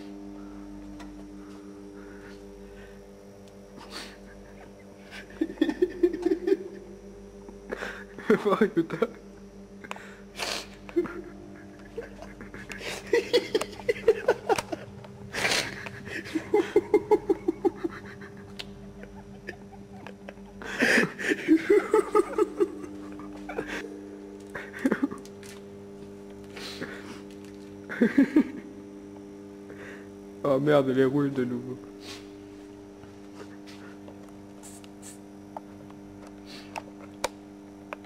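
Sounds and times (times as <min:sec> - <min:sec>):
low hum: 0:00.0 - 0:34.6
people giggling: 0:03.8 - 0:06.9, 0:07.7 - 0:09.3, 0:10.8 - 0:25.3, 0:27.9 - 0:28.8.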